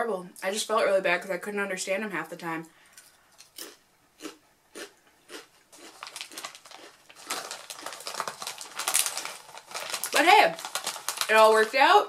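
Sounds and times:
chewing crisp chips: 3.4 - 11.6
foil bag crinkling: 5.7 - 12.0.

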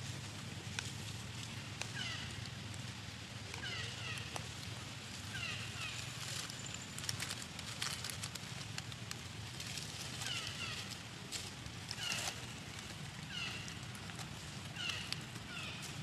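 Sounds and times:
dry leaves rustling: 0.0 - 16.0.

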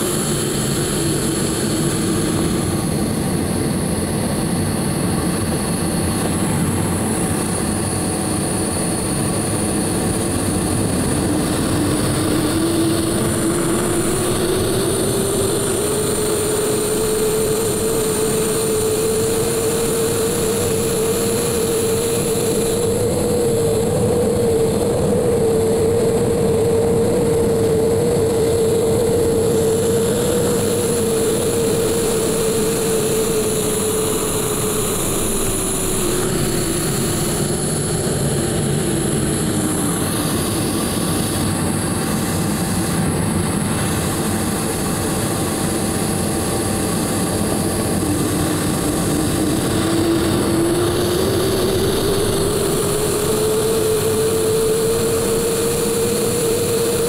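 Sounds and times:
turbojet engine whine: 0.0 - 57.0.

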